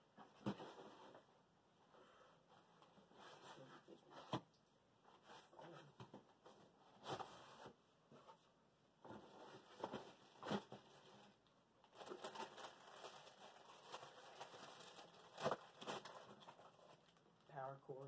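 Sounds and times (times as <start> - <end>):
packaging rustling and crinkling: 9.1 - 17.2.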